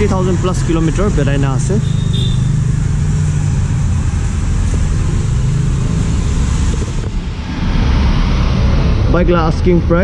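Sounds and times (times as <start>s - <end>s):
motorcycle engine idling: 0.0s - 5.1s.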